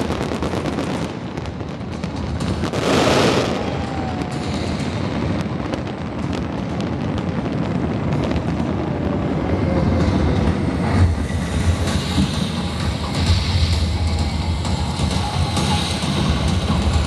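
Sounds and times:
fireworks crackling pops: 0:00.0 - 0:11.1
fireworks rumbling: 0:00.0 - 0:17.0.

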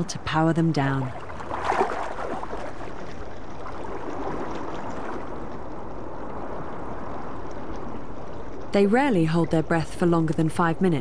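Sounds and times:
underwater rush of moving water: 0:01.1 - 0:08.7.

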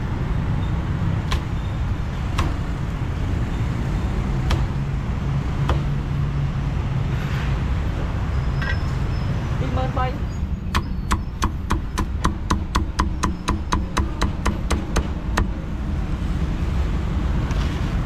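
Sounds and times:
low rumble of road traffic: 0:00.0 - 0:18.0
cleaver chopping on wooden block: 0:02.3 - 0:02.7, 0:04.4 - 0:04.8, 0:05.6 - 0:06.0, 0:10.7 - 0:15.6.

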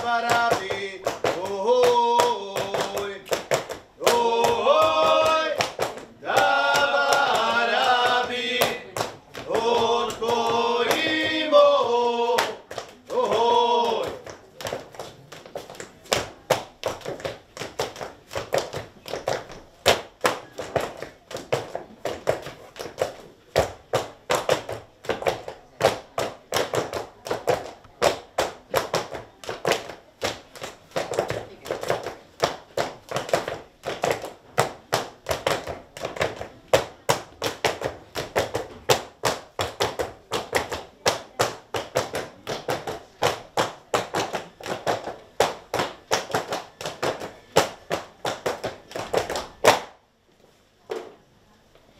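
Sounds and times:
shoes stamping on tiled floor: 0:00.0 - 0:50.0.

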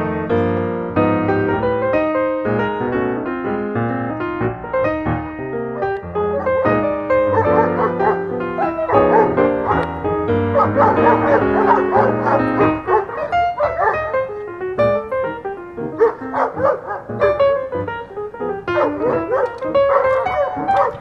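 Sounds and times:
background music: 0:00.0 - 0:21.0
dogs barking: 0:05.7 - 0:15.0, 0:15.8 - 0:21.0.

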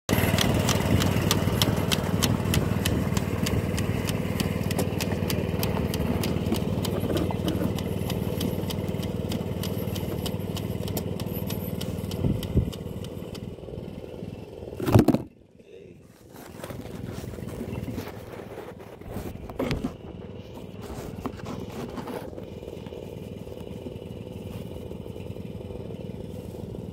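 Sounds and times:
small engine running: 0:00.1 - 0:26.9
regular ticking: 0:00.2 - 0:13.5.

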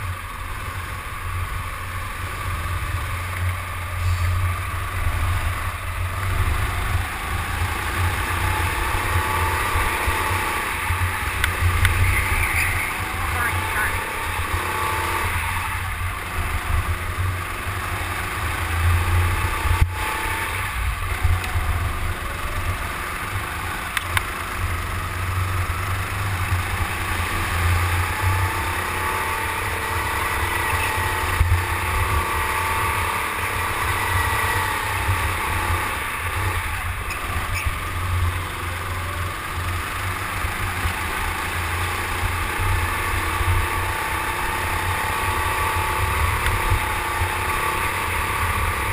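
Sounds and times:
go-kart motor revving: 0:00.0 - 0:48.9.

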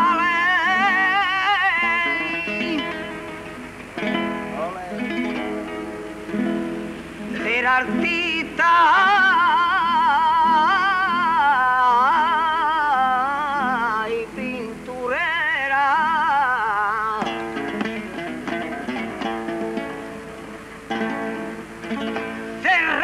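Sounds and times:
man singing ornamented phrases: 0:00.0 - 0:03.2, 0:07.3 - 0:18.7, 0:22.3 - 0:23.0
acoustic guitar: 0:00.0 - 0:23.0.

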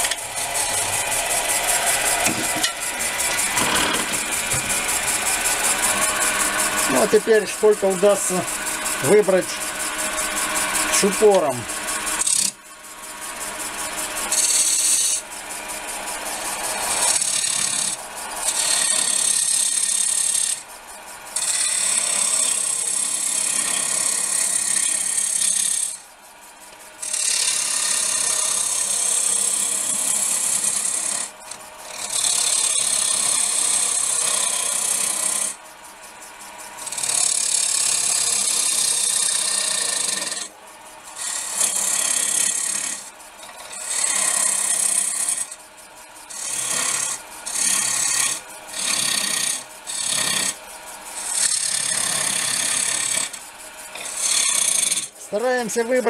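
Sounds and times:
lathe tool scraping wood: 0:00.0 - 0:20.7, 0:21.3 - 0:26.1, 0:27.0 - 0:35.6, 0:36.8 - 0:56.0
lathe running hum: 0:00.0 - 0:56.0.

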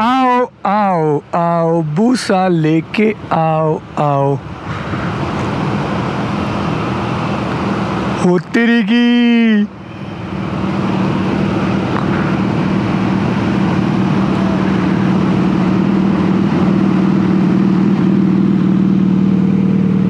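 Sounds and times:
motorcycle engine running: 0:10.3 - 0:20.0.

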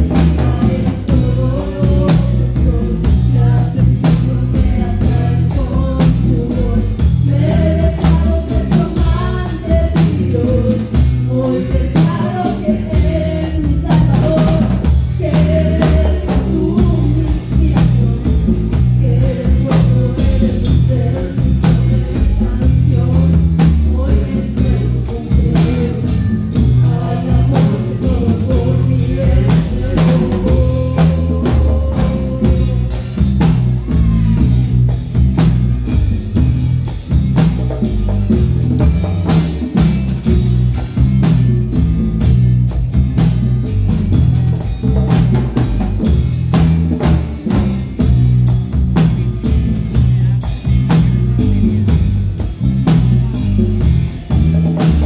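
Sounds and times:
person singing: 0:00.0 - 0:35.0
congas: 0:00.0 - 0:55.0
drum kit beat: 0:00.0 - 0:55.0
electric guitar: 0:00.0 - 0:55.0.

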